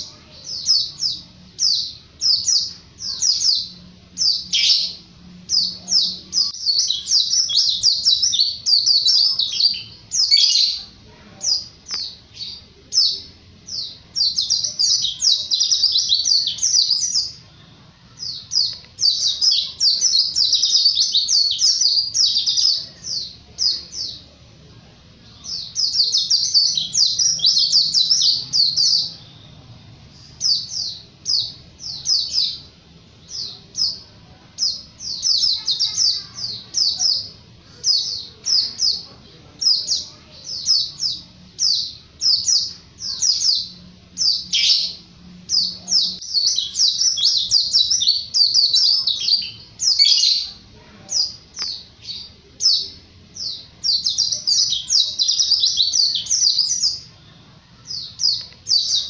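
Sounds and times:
bird twittering: 0.0 - 17.4.

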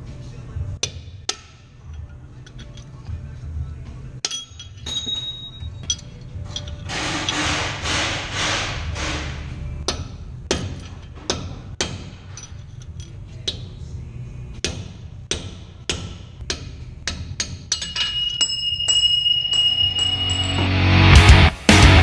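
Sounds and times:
high ringing tone: 4.4 - 5.9, 17.8 - 21.2
hammer striking metal: 6.9 - 12.6, 14.6 - 21.2.

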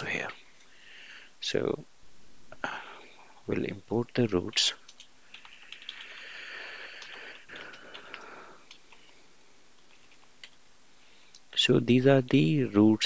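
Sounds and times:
soft hiss: 0.0 - 13.0
faint keyboard keystrokes: 4.5 - 9.2, 9.8 - 10.6.

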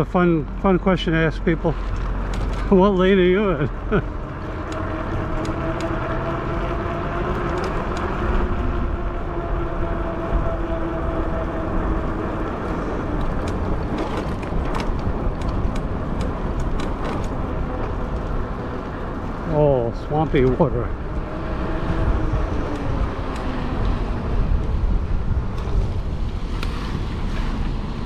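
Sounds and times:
electric bike hum: 0.0 - 28.0
light clicks and rattles: 1.7 - 6.0, 13.0 - 19.0
wind rushing over microphone: 1.7 - 28.0.

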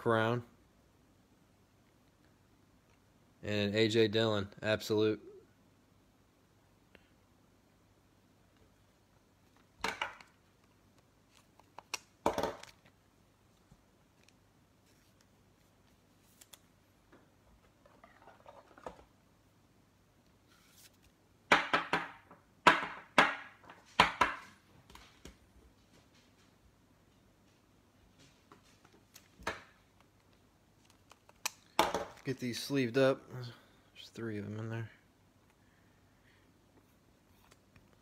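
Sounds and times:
cards and packaging rustling: 9.4 - 16.8, 28.8 - 32.6.

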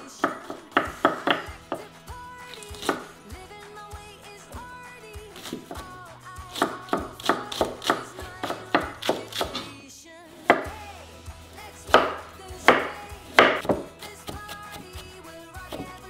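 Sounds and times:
soft background music: 0.0 - 16.0
knife chopping on wooden board: 0.2 - 1.9, 2.8 - 3.1, 6.5 - 9.7, 11.9 - 16.0.

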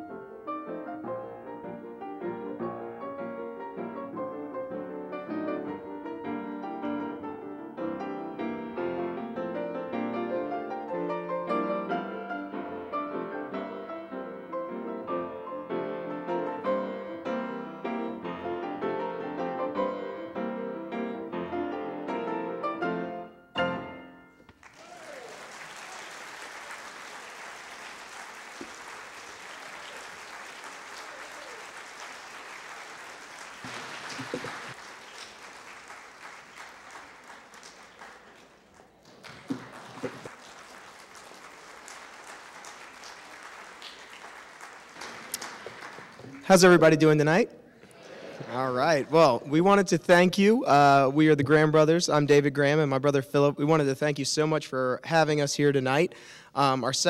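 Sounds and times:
audience applause: 24.6 - 46.8.

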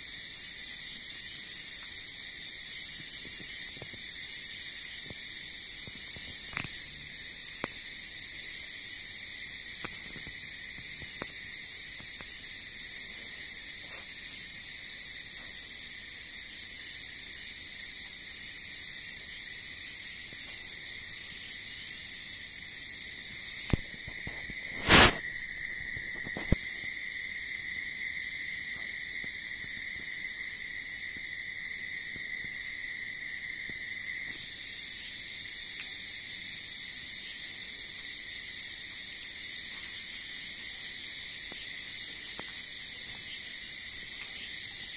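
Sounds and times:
night insects trilling: 0.0 - 44.9.

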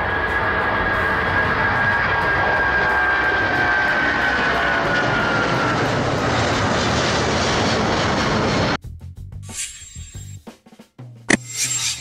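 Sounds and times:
jet engines roaring: 0.0 - 8.8.

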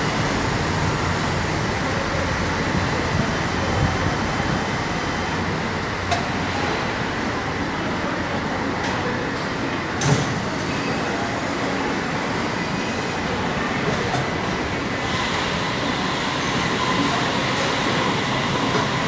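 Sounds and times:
machinery hum: 0.0 - 8.6.

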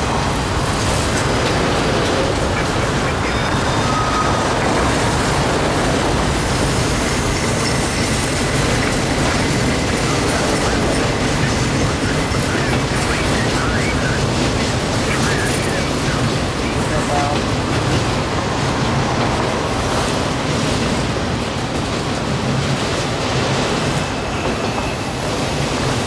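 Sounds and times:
freight cars rumbling on rails: 0.0 - 26.0
high wheel squeal: 3.0 - 4.9, 24.0 - 25.7.

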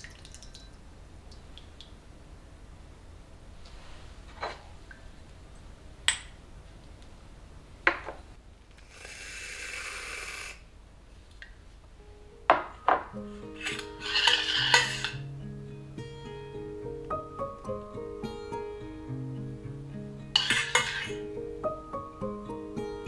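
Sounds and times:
steady hiss: 2.3 - 6.6, 8.7 - 12.4
plucked acoustic guitar music: 13.0 - 23.0
metal spoon clinking on ceramic cup: 13.6 - 15.2, 20.4 - 21.1.

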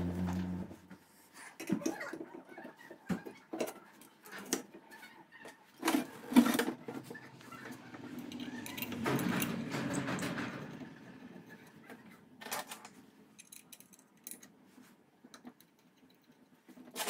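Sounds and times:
metal clicks and clinks: 8.2 - 9.5, 12.5 - 14.6.

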